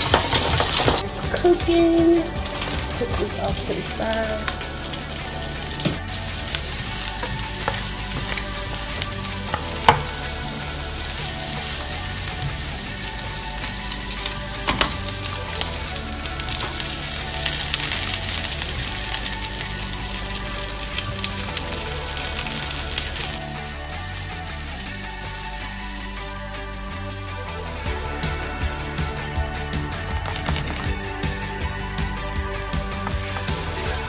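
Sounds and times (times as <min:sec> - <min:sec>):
food sizzling in oil: 0:00.0 - 0:23.4, 0:30.2 - 0:34.0.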